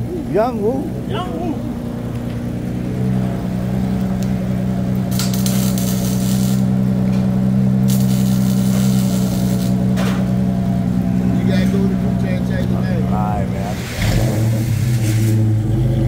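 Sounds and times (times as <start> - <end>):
car engine droning: 0.0 - 16.0
hiss: 5.1 - 6.7, 7.9 - 9.8, 13.7 - 15.5.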